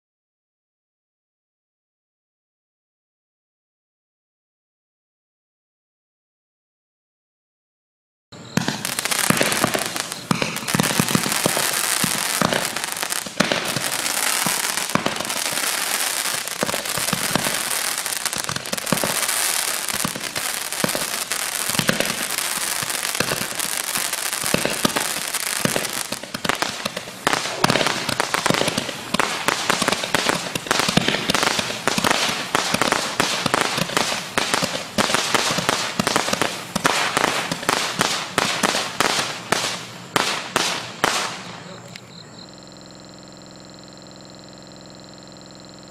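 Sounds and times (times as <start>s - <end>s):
roman candle launch thumps: 8.6s - 33.0s
dense crackling: 8.7s - 39.8s.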